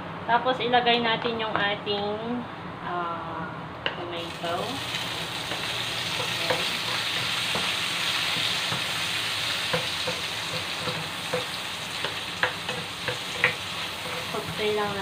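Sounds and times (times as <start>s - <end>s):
tomatoes sizzling in frying pan: 4.1s - 15.0s
spatula knocking against pan: 9.7s - 15.0s.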